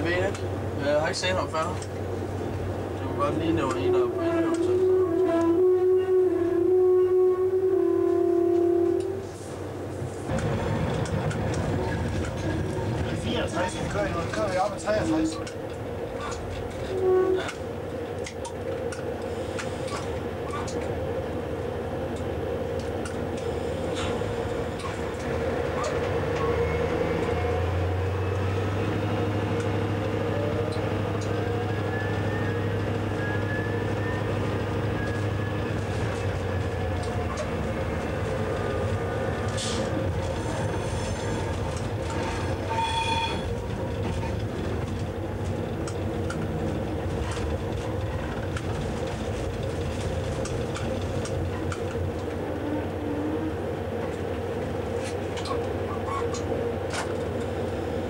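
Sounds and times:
diesel locomotive engine running: 0.0s - 58.0s
short high squeal: 42.7s - 43.5s.

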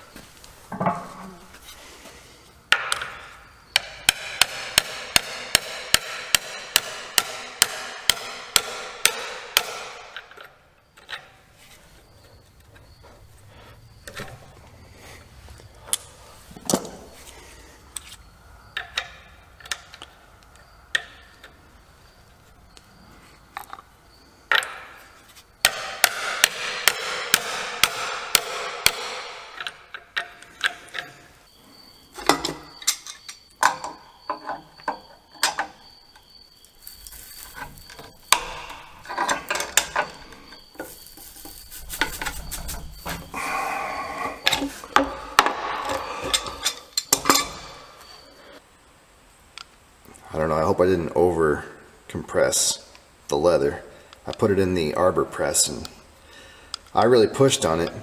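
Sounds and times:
hammer striking ringing steel tube: 3.8s - 10.1s.

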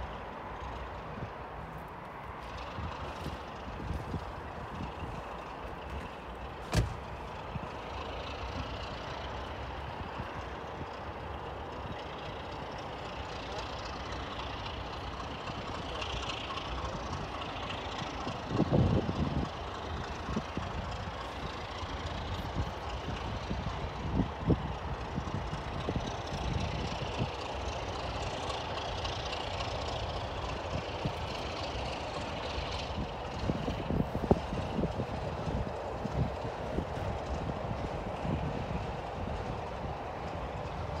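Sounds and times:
distant locomotive rumble: 0.0s - 41.0s.

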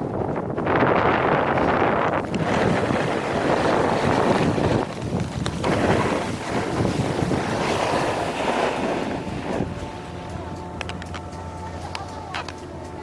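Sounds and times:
wind buffeting microphone: 0.0s - 13.0s
snowboard scraping over snow: 0.6s - 10.4s.

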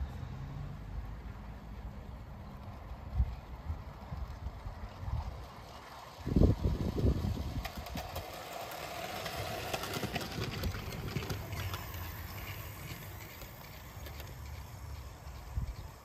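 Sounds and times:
model train wheels clicking: 1.2s - 16.0s.

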